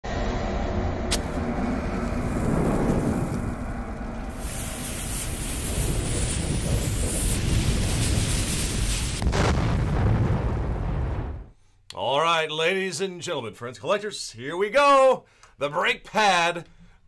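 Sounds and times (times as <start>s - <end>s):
low rumble: 0.0s - 11.5s
sharp click: 1.1s - 1.3s
bomb fuse hissing: 1.1s - 10.9s.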